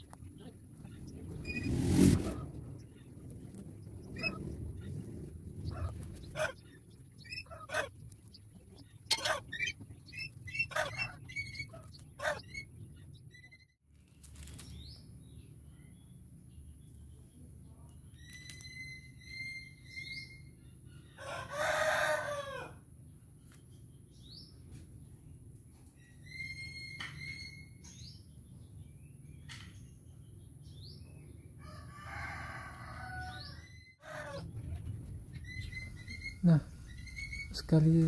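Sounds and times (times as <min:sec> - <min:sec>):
steady low hum: 0:00.0 - 0:21.2, 0:32.6 - 0:38.0
rooster crowing: 0:21.2 - 0:22.8, 0:31.6 - 0:34.5
high bird chirps: 0:35.3 - 0:38.0.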